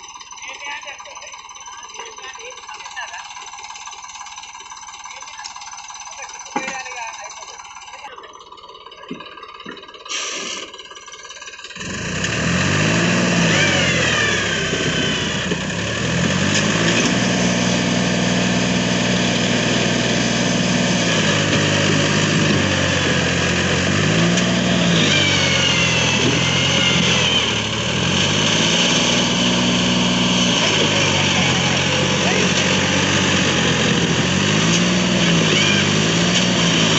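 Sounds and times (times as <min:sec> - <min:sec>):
tractor diesel engine labouring: 0:00.0 - 0:36.9.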